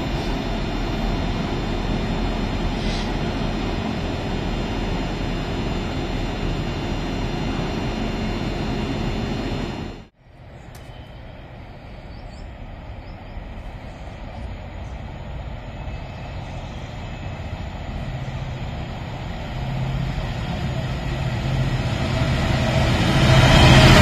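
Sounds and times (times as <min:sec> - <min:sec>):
diesel locomotive engine drone: 0:00.0 - 0:24.0.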